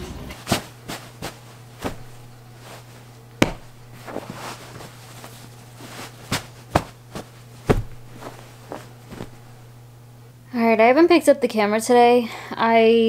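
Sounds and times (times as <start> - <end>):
steady low hum: 0.0 - 13.0
pillows thudding onto bed: 0.4 - 9.8.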